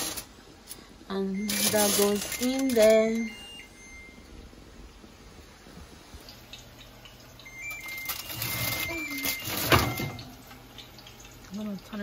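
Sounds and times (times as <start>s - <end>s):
baking tray scraping and rattling: 0.0s - 0.3s, 1.5s - 3.0s, 8.2s - 10.2s
low steady hum: 0.0s - 12.0s.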